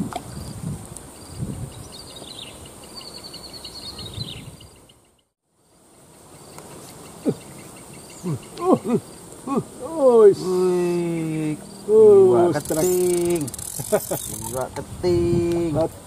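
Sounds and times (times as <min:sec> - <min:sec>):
insects chirping: 0:00.3 - 0:16.0
bird calling and trilling: 0:01.2 - 0:05.2, 0:12.6 - 0:14.8.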